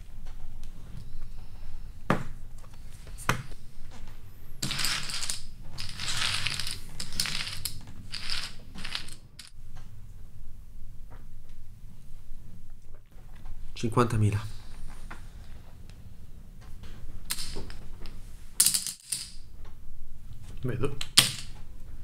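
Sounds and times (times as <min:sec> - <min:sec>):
low steady hum: 0:00.0 - 0:22.0
poker chips clattering: 0:04.6 - 0:09.5, 0:17.3 - 0:17.8.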